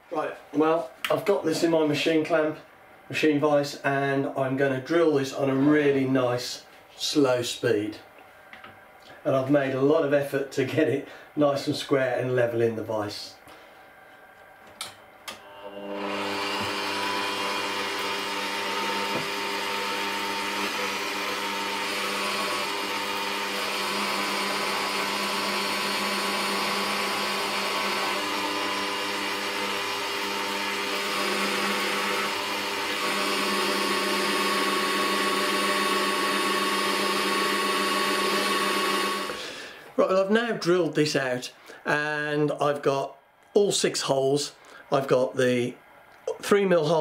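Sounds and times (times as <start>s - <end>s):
drill motor whining: 15.3s - 39.7s.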